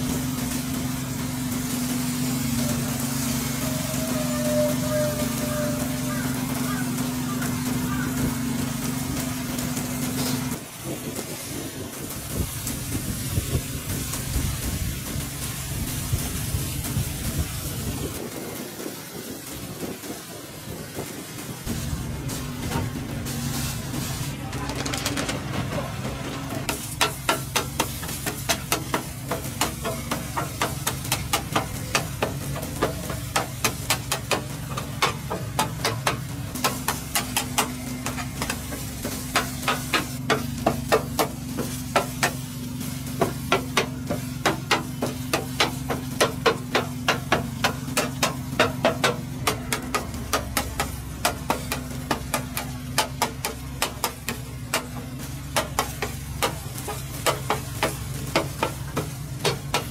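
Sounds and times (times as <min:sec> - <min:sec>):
metal picks tapping a pan: 0:26.7 - 0:59.9.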